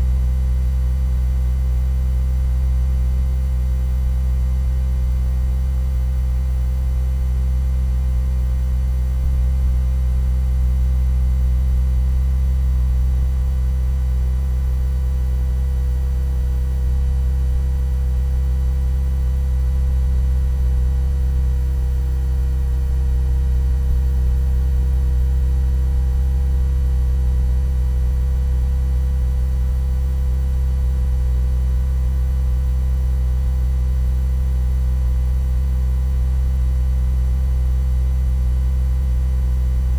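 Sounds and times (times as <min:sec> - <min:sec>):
low hum: 0:09.0 - 0:30.4, 0:39.6 - 0:39.9.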